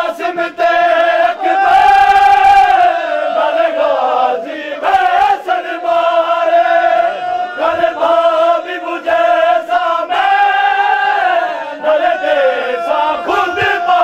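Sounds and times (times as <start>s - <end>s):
men chanting a lament: 0.0s - 14.0s.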